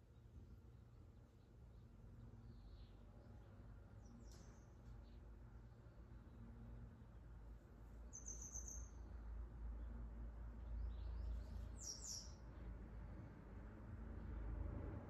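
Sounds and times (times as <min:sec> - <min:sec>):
swallows chirping: 0:08.1 - 0:09.0, 0:10.7 - 0:12.4.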